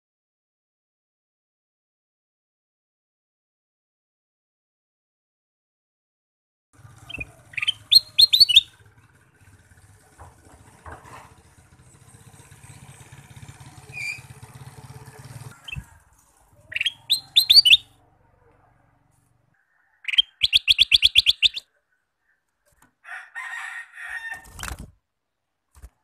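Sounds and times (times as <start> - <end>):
bird chattering song: 7.0 - 8.8, 13.9 - 14.4, 16.6 - 18.0, 19.8 - 22.5.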